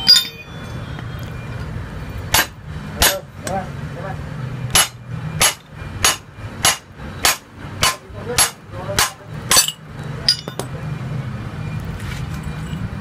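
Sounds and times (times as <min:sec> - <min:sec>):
metallic clink and ringing: 0:00.0 - 0:01.0, 0:09.5 - 0:10.8, 0:12.4 - 0:12.9.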